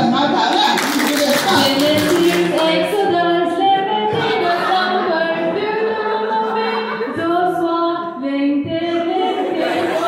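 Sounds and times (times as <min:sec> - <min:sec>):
group singing through microphones: 0:01.4 - 0:10.0.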